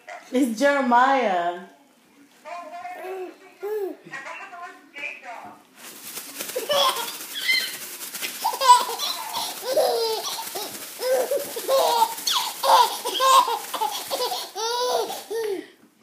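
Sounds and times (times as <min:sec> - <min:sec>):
baby laughing: 0:06.5 - 0:07.8, 0:08.4 - 0:15.7.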